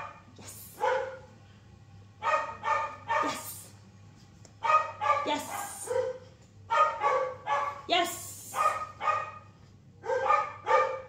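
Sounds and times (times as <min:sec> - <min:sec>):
dog barking: 0:00.8 - 0:01.3, 0:02.2 - 0:03.6, 0:04.6 - 0:07.9, 0:08.5 - 0:11.0.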